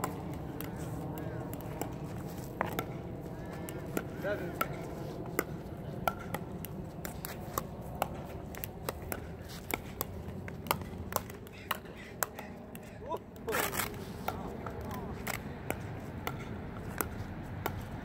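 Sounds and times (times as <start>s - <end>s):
ball bouncing on hard court: 1.5s - 3.0s, 3.8s - 12.8s, 14.2s - 18.0s.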